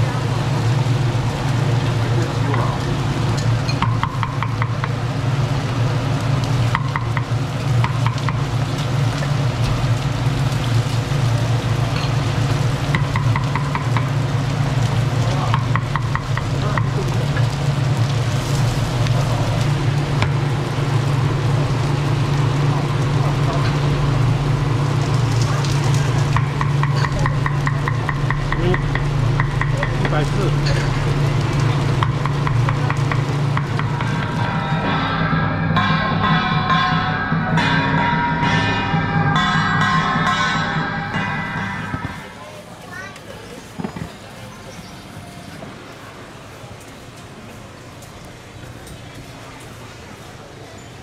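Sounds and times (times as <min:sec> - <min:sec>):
griddle sizzling: 0:00.0 - 0:51.0
steady low hum: 0:14.0 - 0:42.5.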